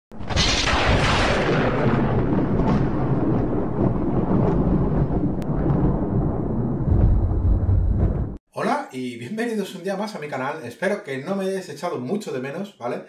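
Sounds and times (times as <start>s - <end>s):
explosion boom: 0.1s - 8.4s
deep rumble: 0.2s - 8.4s.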